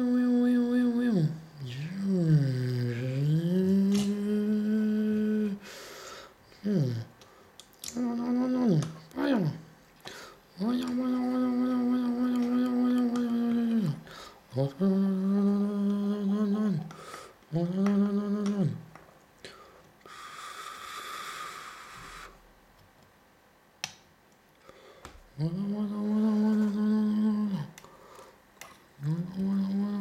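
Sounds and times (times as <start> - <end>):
person humming long notes: 0.0 - 5.8, 6.6 - 7.2, 7.8 - 9.7, 10.6 - 18.9, 25.4 - 27.8, 29.0 - 30.0.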